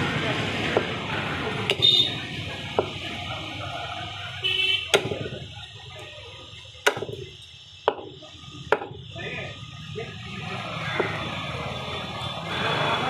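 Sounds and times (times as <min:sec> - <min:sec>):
cleaver chopping on wooden block: 0:04.9 - 0:05.4, 0:06.8 - 0:09.0.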